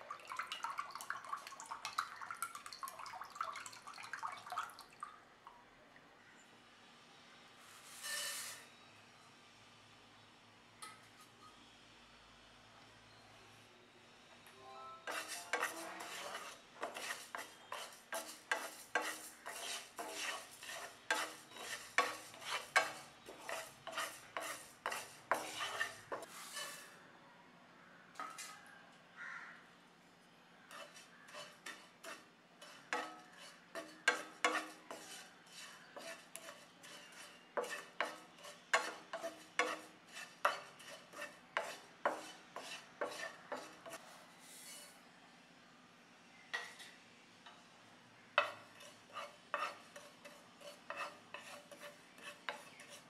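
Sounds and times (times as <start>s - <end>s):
spatula scraping a frying pan: 7.6s - 8.8s, 15.1s - 27.0s, 30.7s - 45.0s, 48.4s - 53.0s.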